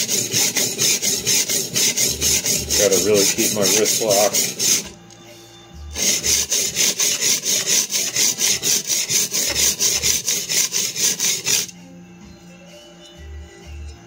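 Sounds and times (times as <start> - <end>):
blade rasping on sharpening stone: 0.0 - 4.9, 6.0 - 11.7.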